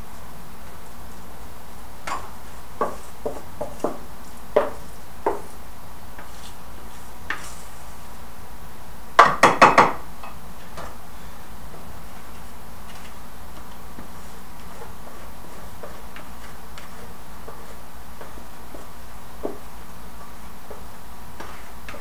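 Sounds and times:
loud knocks on bowl: 0:09.2 - 0:10.0.

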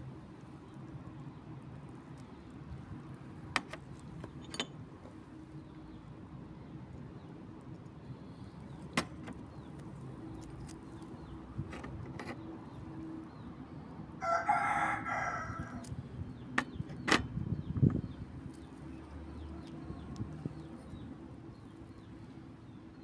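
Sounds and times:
rooster crowing: 0:14.2 - 0:15.9.

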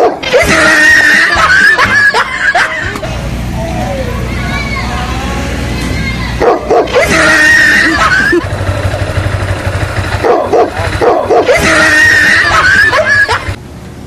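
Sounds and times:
dog barking: 0:00.0 - 0:00.2, 0:06.4 - 0:07.1, 0:10.1 - 0:11.7
dog whining: 0:06.4 - 0:08.5, 0:10.2 - 0:13.5.

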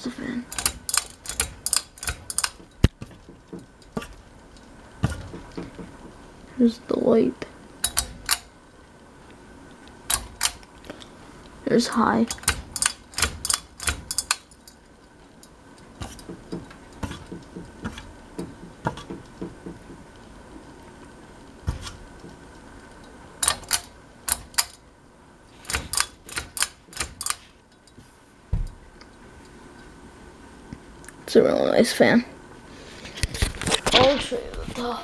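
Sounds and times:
pull-chain switch clicks: 0:00.5 - 0:02.7, 0:07.8 - 0:08.5, 0:10.1 - 0:10.6, 0:12.3 - 0:14.8, 0:23.4 - 0:24.8
metal bead chains rattling: 0:12.3 - 0:14.8.

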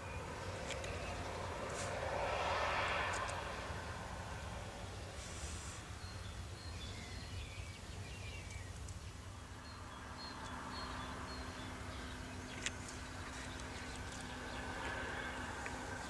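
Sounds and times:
small birds chirping: 0:00.0 - 0:02.5, 0:04.4 - 0:16.0
faint steady hum: 0:00.0 - 0:16.0.

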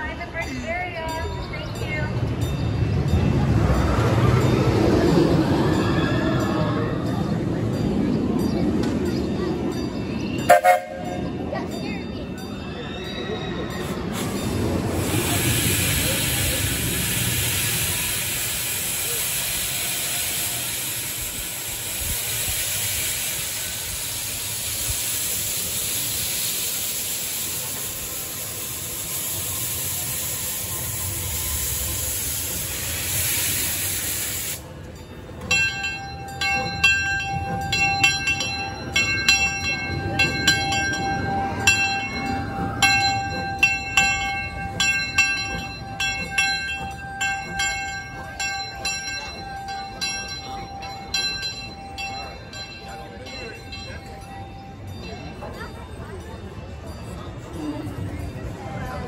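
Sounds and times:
locomotive bell ringing: 0:00.0 - 0:59.0
steam locomotive venting steam: 0:12.4 - 0:58.6.

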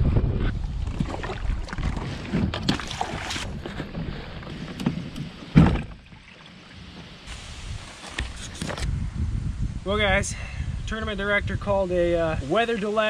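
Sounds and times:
wind rumbling on microphone: 0:00.0 - 0:06.2, 0:06.8 - 0:12.7
water slapping against kayak: 0:00.5 - 0:07.5
loud thump: 0:05.5 - 0:06.0.

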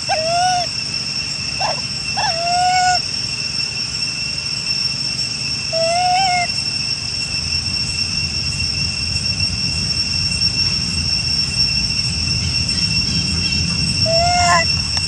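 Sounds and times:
high-pitched two-tone drone: 0:00.0 - 0:15.0
low rumble: 0:07.3 - 0:15.0.

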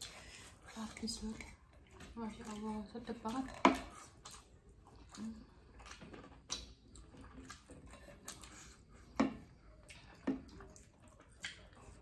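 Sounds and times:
faint chewing: 0:00.0 - 0:12.0
lip smacks: 0:03.5 - 0:12.0.

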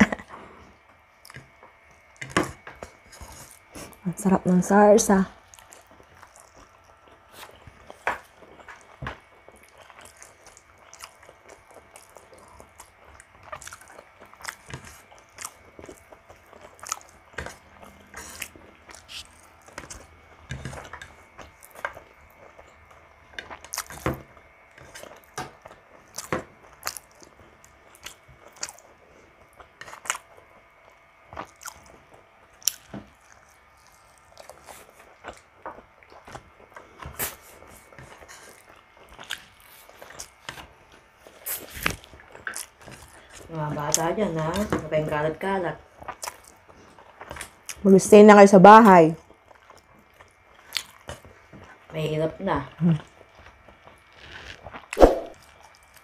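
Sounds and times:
person chewing and lip-smacking: 0:05.5 - 0:44.1, 0:46.0 - 0:47.8, 0:49.2 - 0:51.8.

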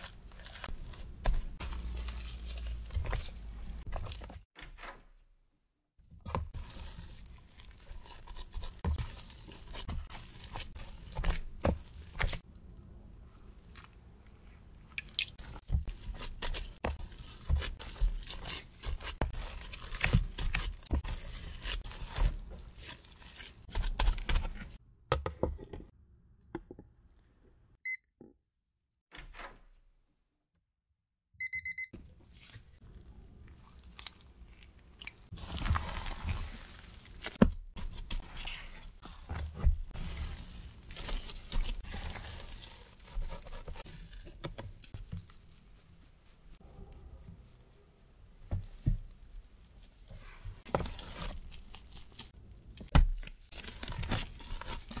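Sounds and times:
wet dough slapping and squishing: 0:00.0 - 0:04.6, 0:06.0 - 0:12.5, 0:13.5 - 0:24.8, 0:32.3 - 0:47.7, 0:48.4 - 0:55.0
kitchen timer beeps: 0:27.8 - 0:28.1, 0:31.4 - 0:31.9.

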